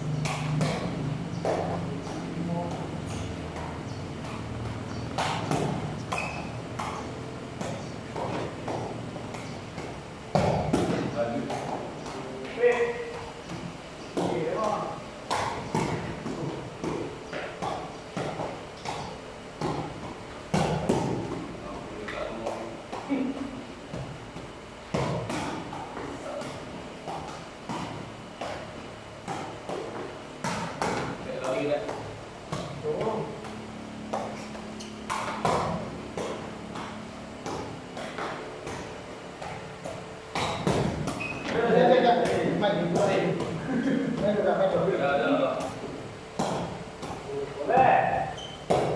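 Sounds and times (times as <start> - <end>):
ball kicked with hollow knocks: 0.1 - 48.9.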